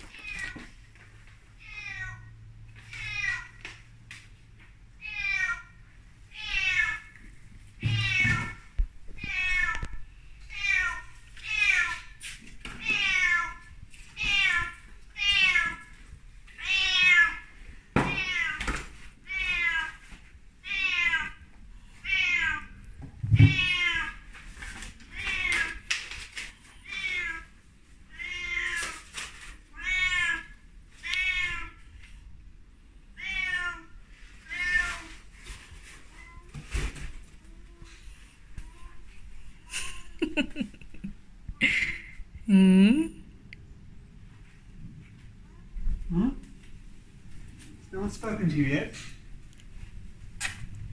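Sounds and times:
cat meowing: 0:01.6 - 0:02.3, 0:07.8 - 0:12.2, 0:12.8 - 0:15.9, 0:16.6 - 0:17.5, 0:20.6 - 0:21.4, 0:22.0 - 0:24.3, 0:28.1 - 0:29.0, 0:29.7 - 0:31.8, 0:33.2 - 0:35.2.

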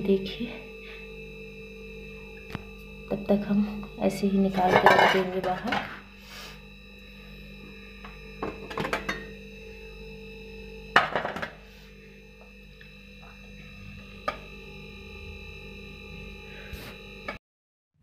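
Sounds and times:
metal plates clinking: 0:04.6 - 0:05.9.

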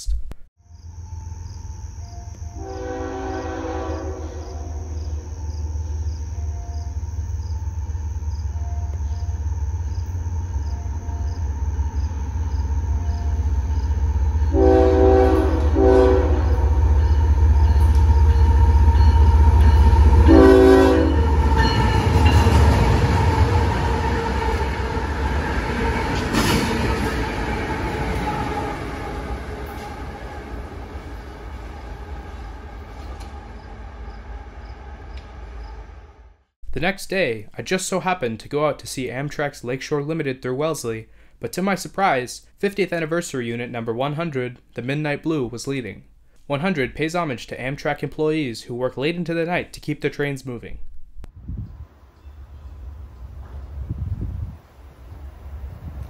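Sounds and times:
rail noise: 0:00.7 - 0:36.5, 0:50.8 - 0:56.0
diesel locomotive rumble: 0:00.8 - 0:36.5
locomotive horn blasts: 0:02.5 - 0:05.4, 0:08.0 - 0:23.8.

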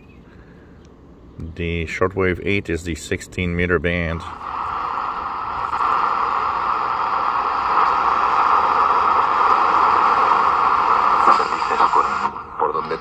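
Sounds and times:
radio static hissing: 0:02.9 - 0:13.0.

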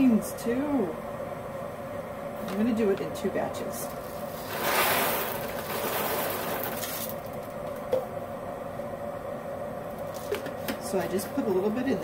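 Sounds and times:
coffee beans rattling: 0:03.8 - 0:07.5
paper bag rustling: 0:03.9 - 0:07.4.

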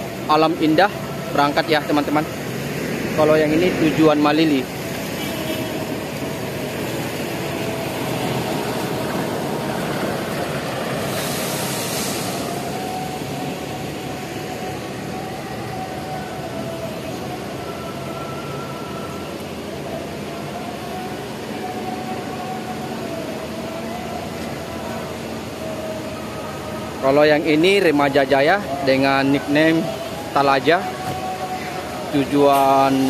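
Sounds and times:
diesel bus engine running: 0:00.0 - 0:33.0
air hiss: 0:11.0 - 0:13.8.

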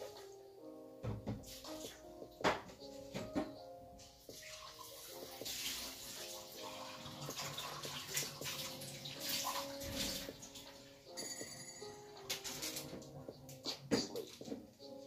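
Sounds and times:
faint background music: 0:00.0 - 0:15.0
running water: 0:04.0 - 0:11.4.

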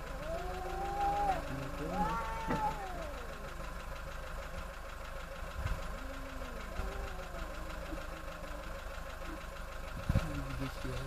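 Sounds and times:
cats yowling: 0:00.0 - 0:04.1, 0:05.4 - 0:09.5
steady background hum: 0:00.0 - 0:11.0.

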